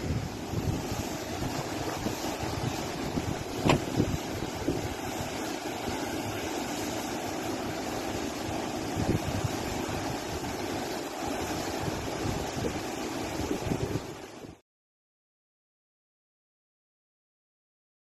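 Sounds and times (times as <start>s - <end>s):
wind buffeting microphone: 0.0s - 6.0s, 8.7s - 14.6s
river water rushing over rocks: 0.0s - 14.5s.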